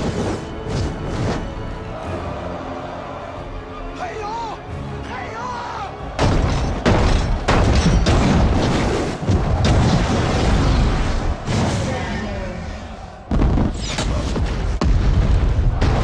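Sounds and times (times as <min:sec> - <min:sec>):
booms and impacts: 0:06.2 - 0:12.1, 0:13.3 - 0:16.0.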